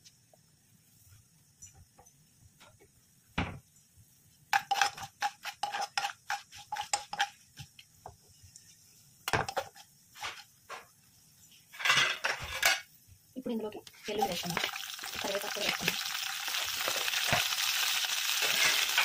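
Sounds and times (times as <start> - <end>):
metal spoon scraping a pan: 4.5 - 7.4, 11.7 - 12.9, 18.3 - 19.0.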